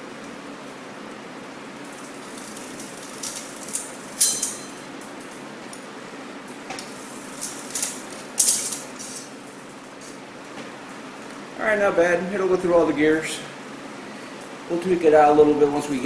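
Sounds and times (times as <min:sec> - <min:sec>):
bicycle chain clattering on shifts: 0:01.8 - 0:05.9, 0:06.8 - 0:09.4.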